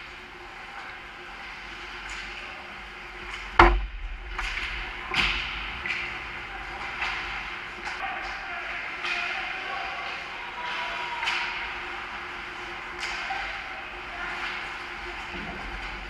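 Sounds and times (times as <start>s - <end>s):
stick and puck knocks: 3.6s - 5.4s
puck striking sharp crack: 3.6s - 5.6s.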